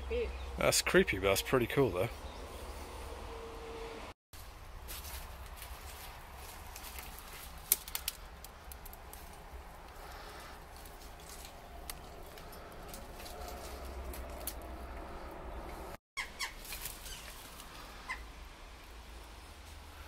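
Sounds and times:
light clicks and crackles: 5.5s - 15.1s.

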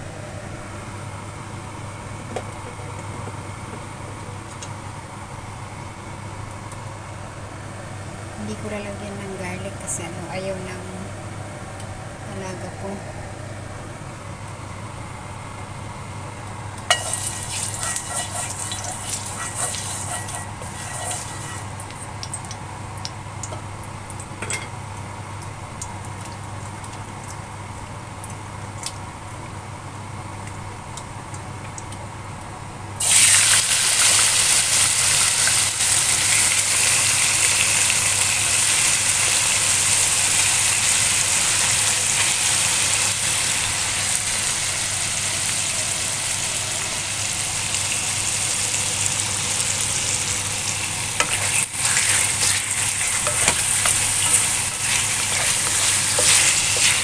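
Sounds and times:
low steady hum: 0.0s - 33.0s
chicken wings sizzling in oil: 16.8s - 28.5s, 33.0s - 57.0s
oil crackling: 16.9s - 23.1s, 49.8s - 57.0s.

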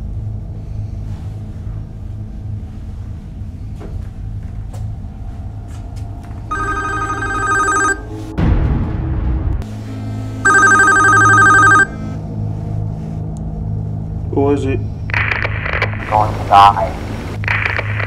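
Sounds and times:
low rumble: 0.0s - 7.0s, 8.0s - 18.0s
mobile phone ringtone: 6.5s - 8.1s, 10.4s - 12.1s
loud low boom: 8.2s - 10.3s.

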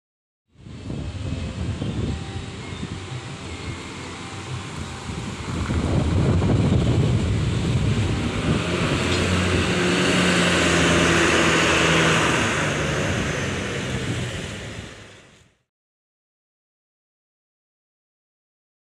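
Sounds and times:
bus diesel engine driving past: 0.6s - 15.6s.

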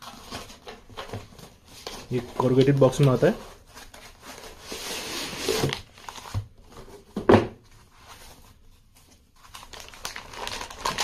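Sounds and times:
packing foam rustling: 9.4s - 11.0s.

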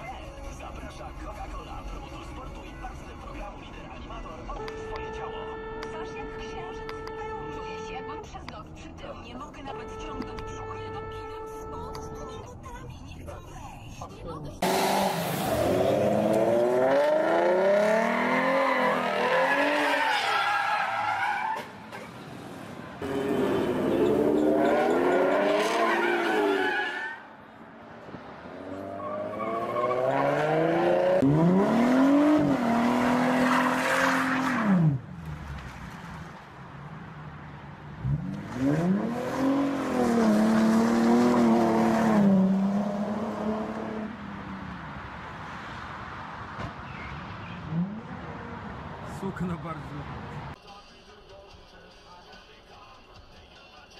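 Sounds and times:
car engine revving: 14.6s - 20.2s, 22.0s - 26.8s, 27.7s - 50.6s
tyres squealing: 17.8s - 22.2s, 23.0s - 27.3s.

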